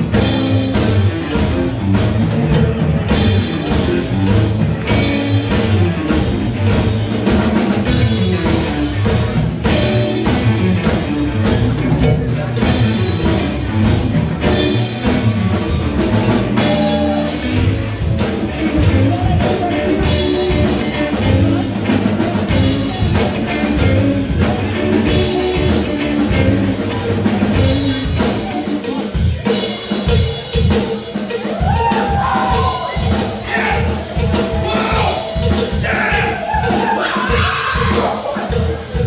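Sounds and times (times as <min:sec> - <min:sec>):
drum kit beat: 0:00.0 - 0:39.0
electric guitars: 0:00.0 - 0:39.0
rock band playing live: 0:00.0 - 0:39.0
person singing: 0:32.2 - 0:38.7.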